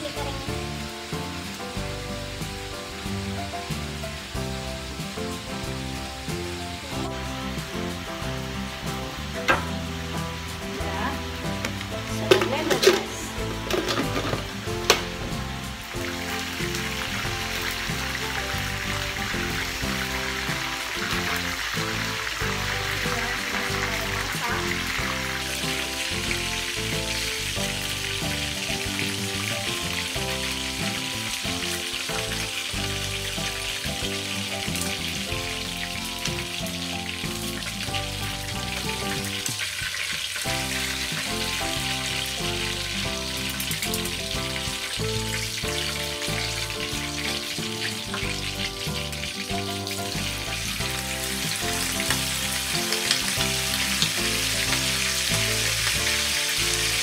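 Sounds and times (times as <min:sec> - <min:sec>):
background music: 0:00.0 - 0:57.0
chicken deep-frying in oil: 0:00.0 - 0:57.0.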